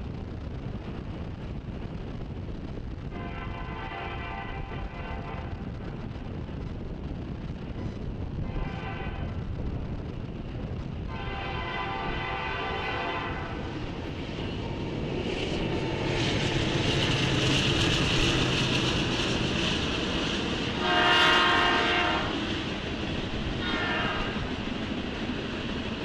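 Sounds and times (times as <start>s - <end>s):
train wheels on rails: 0.0s - 26.0s
train air horn blasts: 3.1s - 5.6s, 8.5s - 9.4s, 11.1s - 13.6s, 20.8s - 22.4s, 23.6s - 24.5s.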